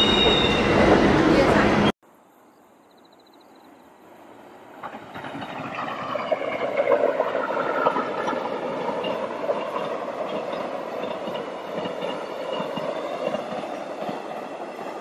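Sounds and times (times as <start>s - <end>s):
train wheels rumbling on rails: 4.7s - 15.0s
wheels clicking over track: 4.8s - 15.0s.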